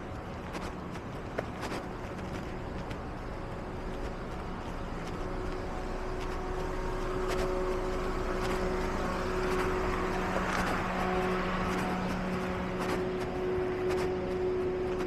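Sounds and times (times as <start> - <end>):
mechanical hum with pitched tones: 0.0 - 15.0
street noise: 0.0 - 15.0.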